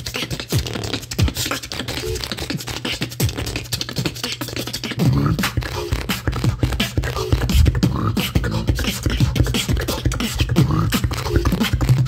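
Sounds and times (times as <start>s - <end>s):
beatboxing: 0.0s - 12.0s
short hummed notes: 4.8s - 11.4s
low vocal bass line: 5.0s - 12.0s.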